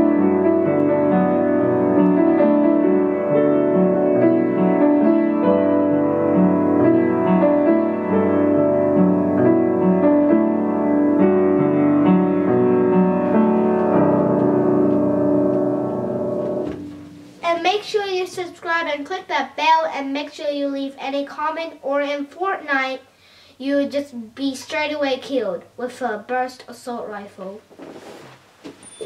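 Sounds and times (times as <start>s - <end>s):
upright piano playing: 0.0s - 18.3s.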